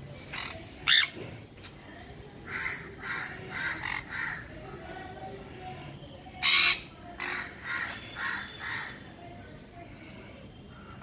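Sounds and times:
parrots screeching: 2.5 - 4.4, 6.4 - 9.0.

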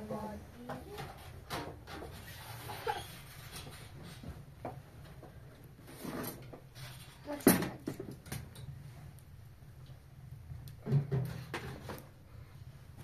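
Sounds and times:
light knocks and clatter: 3.5 - 8.7, 10.7 - 12.1.

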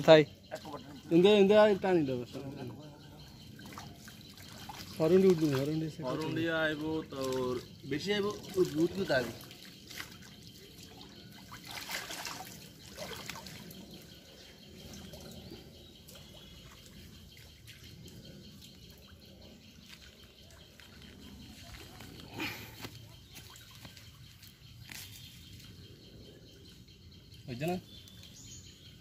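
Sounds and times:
pond water sloshing and trickling: 0.0 - 29.0
water splashes: 2.4 - 15.3.

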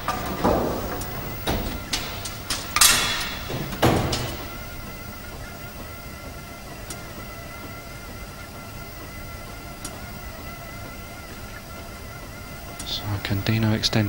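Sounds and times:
bowling pins crashing: 0.0 - 5.3
low hum of hall: 0.0 - 14.0.

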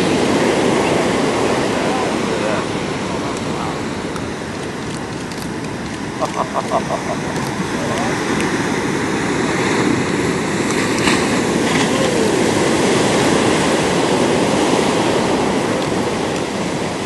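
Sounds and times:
waves breaking on beach: 0.0 - 17.0.

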